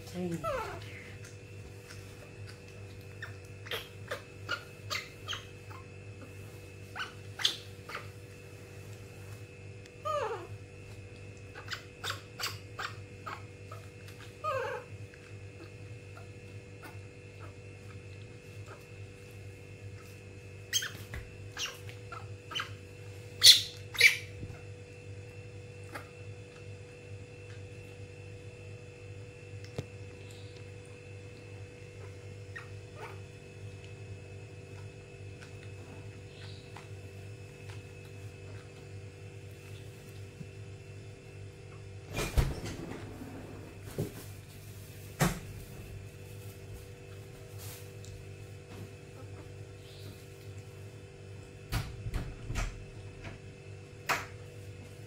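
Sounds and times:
faint steady hum: 0.0s - 55.0s
baby monkey squeaking: 3.2s - 5.8s, 6.9s - 8.2s, 11.5s - 13.4s, 20.7s - 22.8s, 23.4s - 24.4s.

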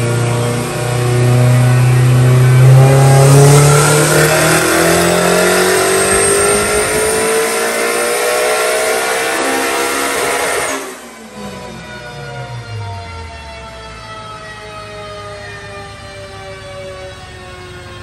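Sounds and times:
car engine revving at full throttle: 0.0s - 12.8s
high rising whine: 0.0s - 13.5s.

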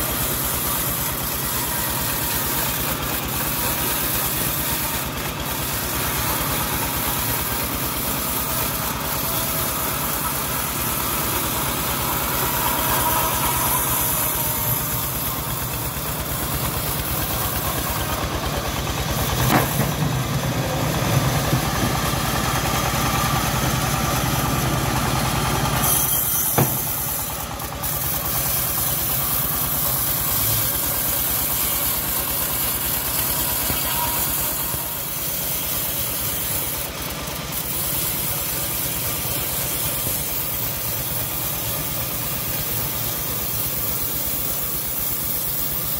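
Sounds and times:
band saw cutting log: 0.0s - 45.9s
sawmill engine running: 0.0s - 45.9s
sharp knocks: 19.4s - 20.2s, 26.5s - 27.0s.

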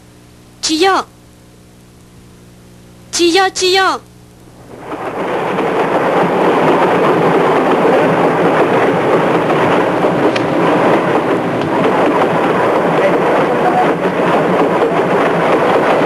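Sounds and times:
train running on rails: 4.6s - 16.0s.

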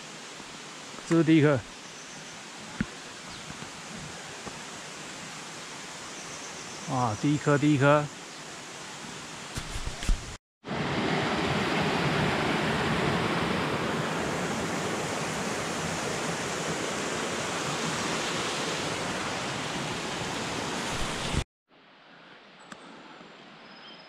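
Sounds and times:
forest ambience: 0.0s - 10.3s
waterfall rushing over rocks: 12.6s - 21.4s.

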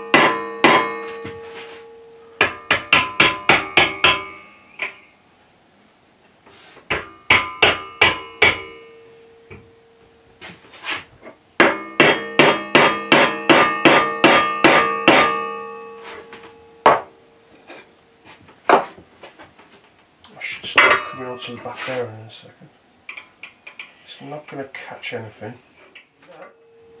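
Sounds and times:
mallet tapping metal with ring: 2.4s - 5.0s.

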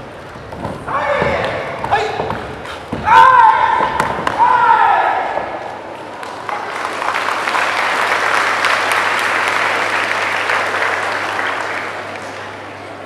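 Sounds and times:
audience applauding: 6.0s - 12.8s.

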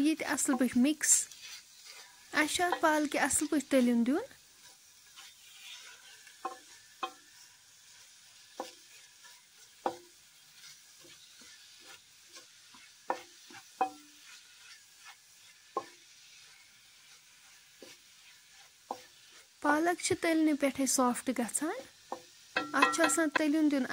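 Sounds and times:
faint sizzle: 0.0s - 23.9s
spatula stirring spinach in pot: 0.0s - 23.9s
spatula knocking against pot: 6.4s - 7.2s, 13.1s - 14.1s, 22.1s - 23.5s.

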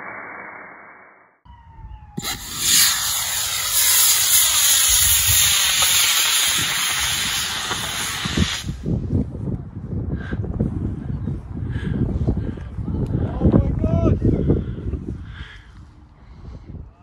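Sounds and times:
wind rumble on microphone: 1.5s - 17.0s
rocket motor hissing rush: 2.2s - 8.8s.

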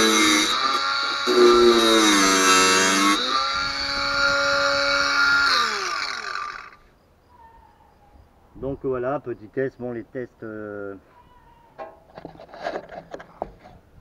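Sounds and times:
angle grinder cutting steel: 0.0s - 6.8s.

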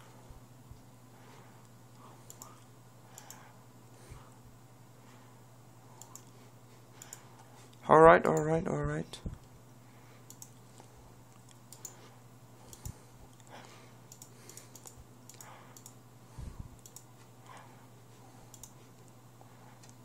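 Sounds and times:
steady low hum: 0.0s - 20.0s
mouse and keyboard clicks: 6.0s - 6.3s.

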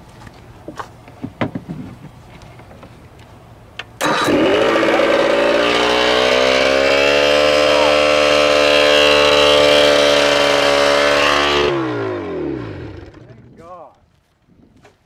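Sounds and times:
outboard motor running fast: 4.0s - 13.3s.

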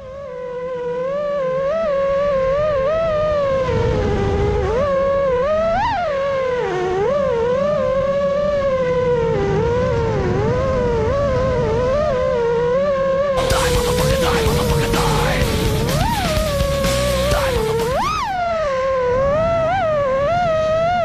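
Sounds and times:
low wind rumble: 0.0s - 21.0s
drone motors whining: 6.8s - 20.4s.

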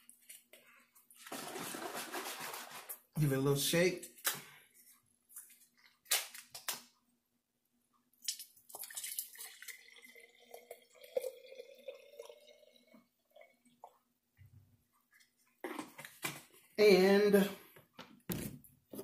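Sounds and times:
liquid pouring into glass jar: 8.3s - 14.0s.

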